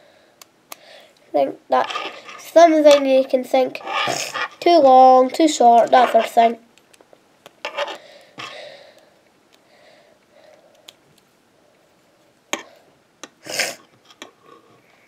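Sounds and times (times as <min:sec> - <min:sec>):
plastic pieces rubbing: 0:01.7 - 0:06.6, 0:07.5 - 0:08.6.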